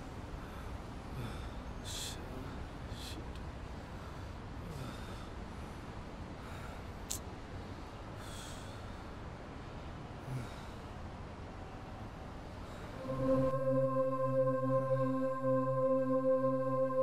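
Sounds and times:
man breathing heavily through nose: 0.2 - 11.2, 12.5 - 13.2
low rumble: 13.0 - 17.0.

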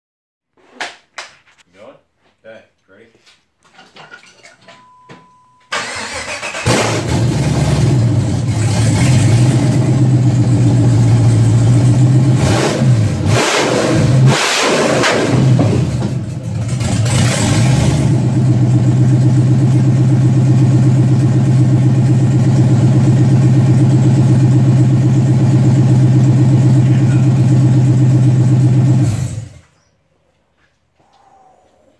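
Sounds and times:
car engine starting revving and idling: 5.8 - 29.8.

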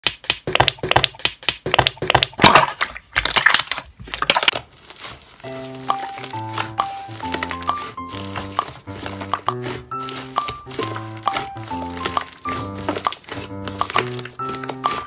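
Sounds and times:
background music with held notes: 5.4 - 15.0.

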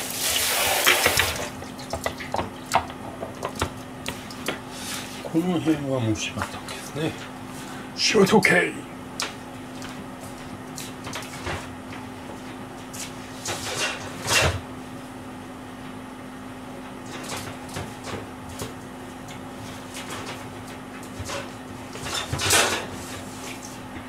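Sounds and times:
steady low hum: 0.0 - 24.0
kitchen knocks and rattles: 21.1 - 22.9.

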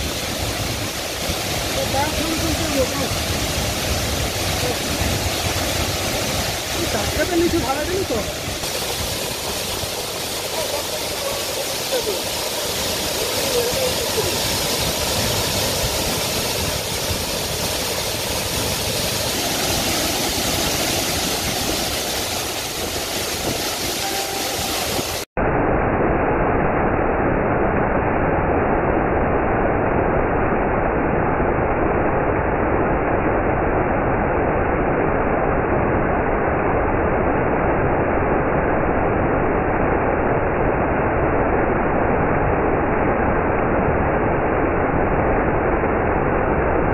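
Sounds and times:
waterfall rushing: 0.0 - 25.3.

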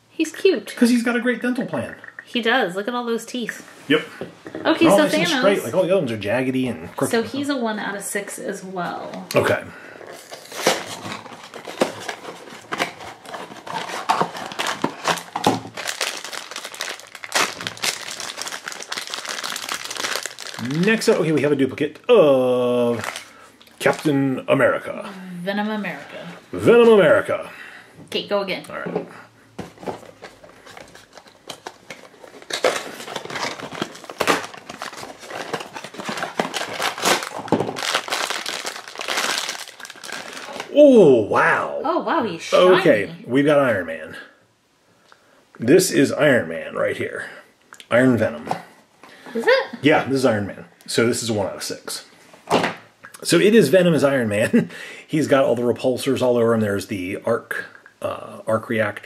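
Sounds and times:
foil bag crinkling: 10.0 - 21.6, 22.8 - 24.2, 30.0 - 40.8.

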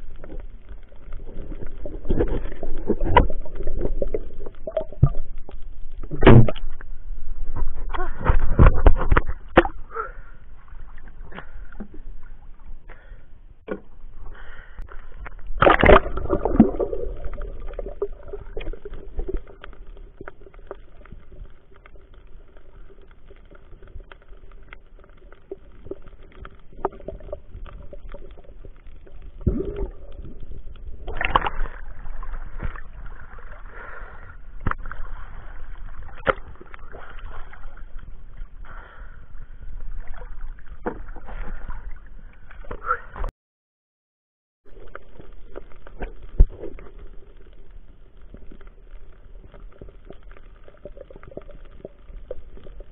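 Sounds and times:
water sloshing and gurgling: 0.0 - 43.3, 44.7 - 52.9
water splash: 15.2 - 20.6, 31.0 - 33.9.

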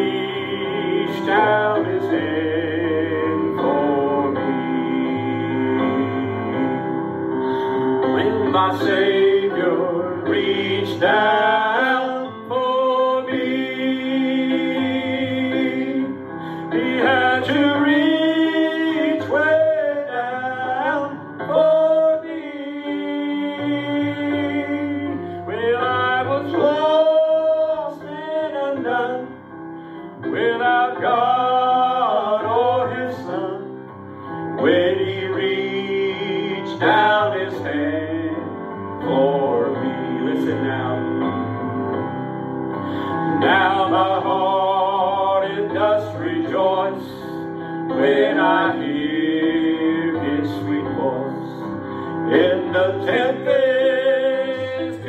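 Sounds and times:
person singing gospel song: 0.0 - 29.4, 30.2 - 33.8, 34.6 - 42.0, 42.8 - 55.0
guitar accompaniment: 40.9 - 44.2.

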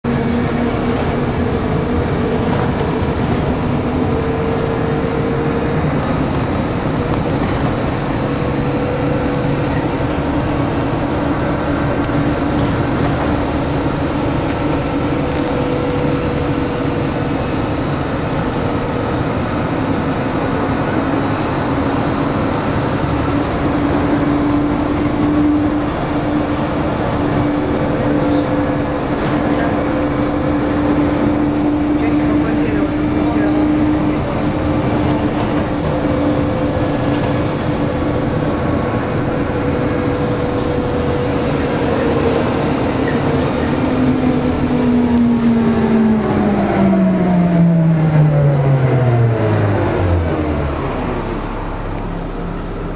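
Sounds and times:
train running noise: 0.0 - 52.9.

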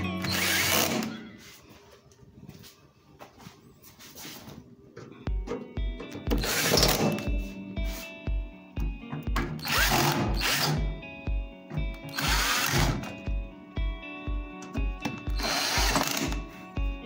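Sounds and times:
power screwdriver whirring: 0.2 - 1.1, 12.1 - 13.1, 15.4 - 16.4
music with thumping beat: 5.0 - 17.0.

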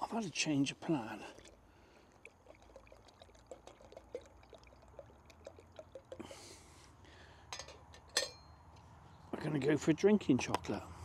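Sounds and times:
milk pouring into water: 0.9 - 6.5.

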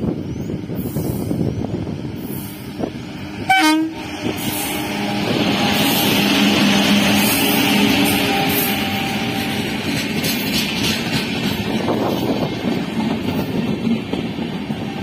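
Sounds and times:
train wheels rushing on rail: 0.0 - 15.0
train horn blast: 3.4 - 9.7.

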